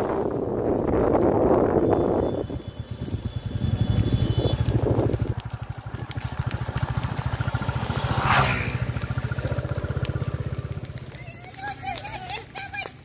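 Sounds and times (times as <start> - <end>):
motorcycle engine running: 0.5 - 11.6
motorcycle passing by: 2.3 - 12.6.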